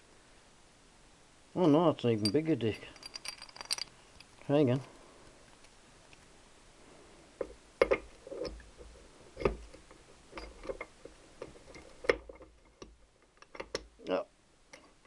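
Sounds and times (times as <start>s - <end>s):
metal gears clicking and clinking: 2.3s - 4.3s.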